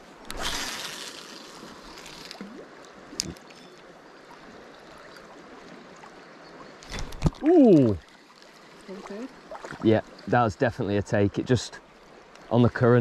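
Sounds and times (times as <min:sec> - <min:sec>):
river running over gravel: 0:00.0 - 0:05.9, 0:06.8 - 0:10.6.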